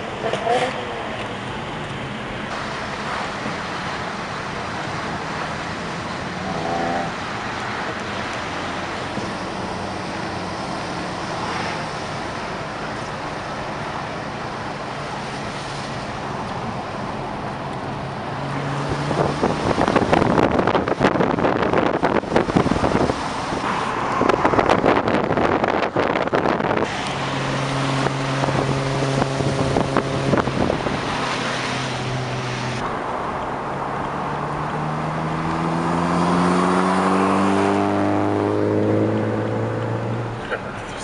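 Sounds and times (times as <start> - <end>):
car road and engine noise: 0.0 - 41.0
wind buffeting microphone: 18.6 - 32.4.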